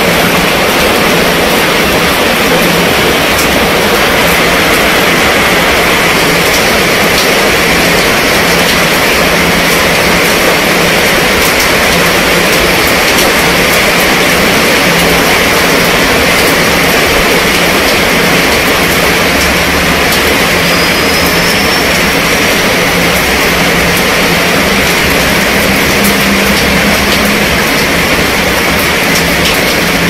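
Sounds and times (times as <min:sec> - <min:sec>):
heavy rain on fabric canopy: 0:00.0 - 0:30.0
rain splashing on pavement: 0:00.0 - 0:30.0
sharp taps of raindrops: 0:06.3 - 0:21.7, 0:22.4 - 0:30.0.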